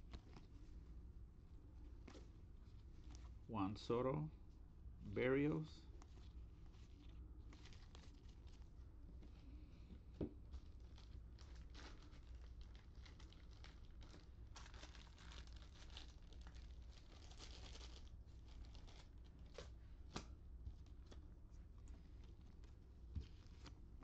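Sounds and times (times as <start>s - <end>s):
foil wrapper crinkling: 6.1s - 8.7s, 10.5s - 20.2s.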